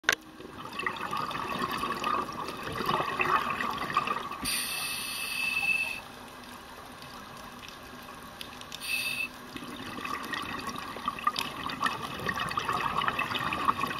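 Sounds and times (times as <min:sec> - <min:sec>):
exhaled bubbles gurgling underwater: 0:00.3 - 0:06.1, 0:09.4 - 0:13.9
regulator hissing inhale: 0:04.4 - 0:06.0, 0:08.8 - 0:09.3.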